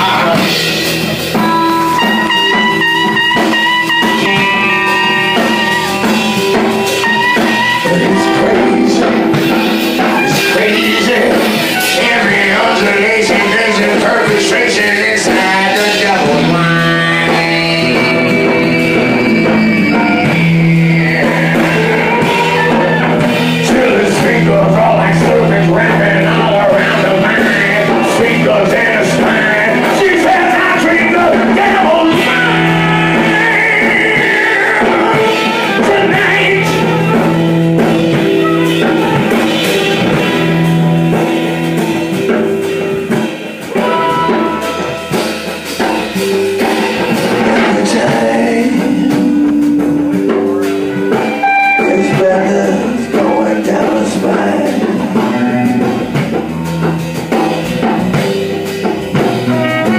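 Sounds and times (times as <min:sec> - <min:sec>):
blues rock band playing: 0:00.0 - 0:59.9
person singing: 0:00.0 - 0:59.9.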